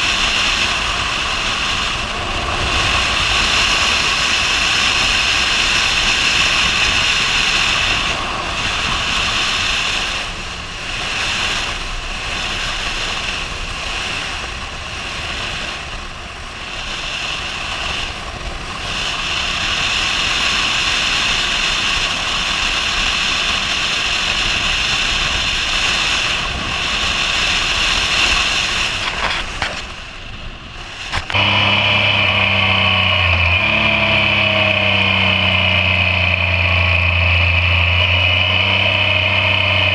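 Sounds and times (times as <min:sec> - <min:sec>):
motorcycle engine: 0:00.0 - 0:39.9
wind and road noise: 0:00.0 - 0:39.9.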